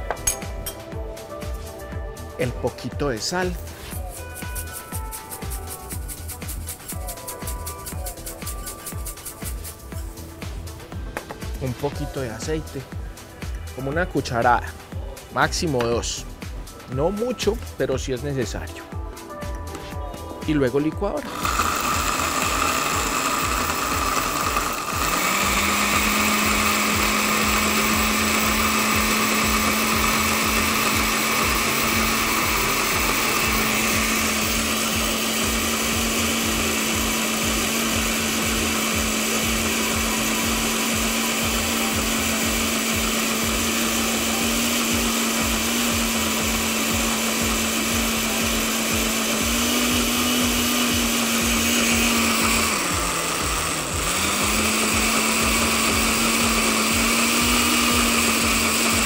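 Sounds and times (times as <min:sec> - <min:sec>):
blender running: 0:03.9 - 0:10.2, 0:21.2 - 0:59.0.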